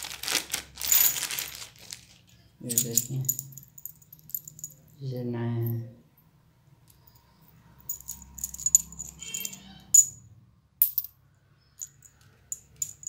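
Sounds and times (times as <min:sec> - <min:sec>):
metal bearings clinking: 0:00.8 - 0:01.6, 0:02.3 - 0:05.8, 0:06.8 - 0:13.0.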